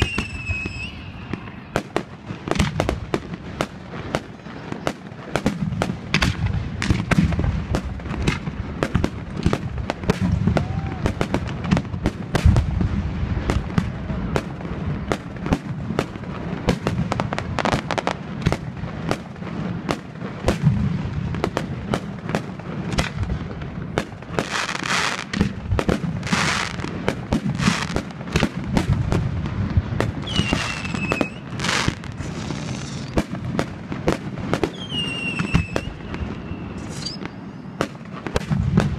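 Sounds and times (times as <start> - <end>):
high whistles: 0.0 - 1.8, 30.2 - 31.6, 34.7 - 37.8
fireworks banging and crackling: 0.0 - 38.9
hissing bursts: 30.3 - 33.2.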